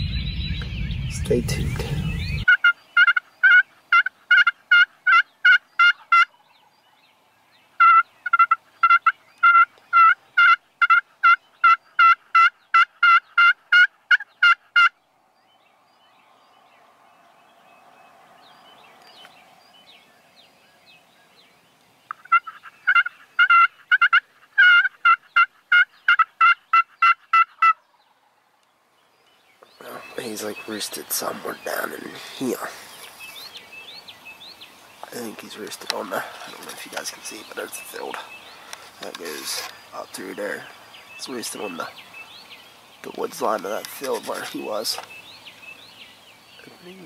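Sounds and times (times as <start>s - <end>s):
turkey call hen yelps: 2.4s - 6.3s, 7.8s - 14.9s, 22.1s - 27.8s
faint scratchy hiss: 28.1s - 47.0s.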